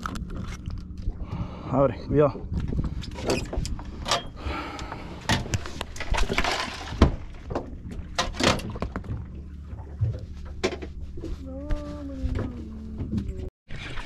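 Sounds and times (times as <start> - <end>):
low steady hum: 0.0 - 13.5.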